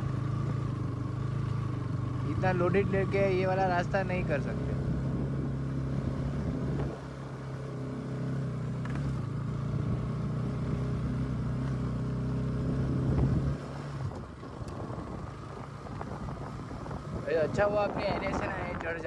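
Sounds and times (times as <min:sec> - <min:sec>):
motorcycle engine under load: 0:00.0 - 0:19.0.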